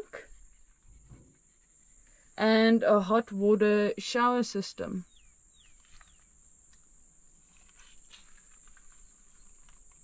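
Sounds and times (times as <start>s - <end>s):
falling bird chirps: 5.1s - 6.4s.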